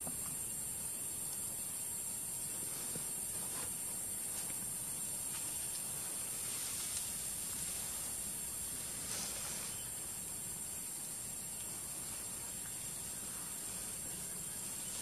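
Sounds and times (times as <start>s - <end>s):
steady high-pitched hiss: 0.0s - 15.0s
leaves and branches rustling: 2.4s - 15.0s.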